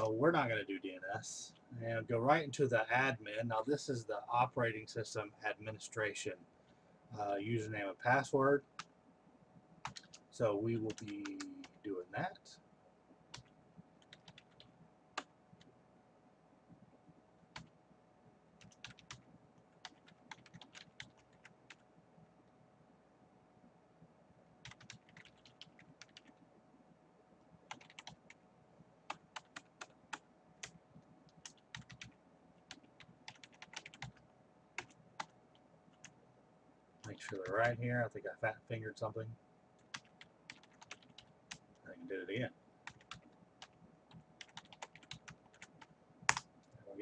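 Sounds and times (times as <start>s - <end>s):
typing on a keyboard: 9.8s - 10.2s, 10.9s - 11.8s, 13.3s - 15.3s, 18.6s - 19.2s, 19.8s - 21.8s, 24.6s - 26.4s, 27.7s - 28.4s, 29.1s - 34.2s, 34.8s - 35.4s, 39.8s - 41.6s, 42.9s - 46.5s.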